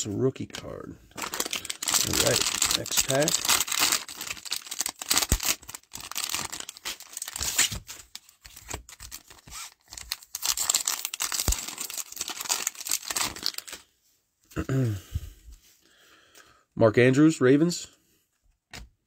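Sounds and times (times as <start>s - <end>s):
foil wrapper crinkling and tearing: 1.1s - 13.8s.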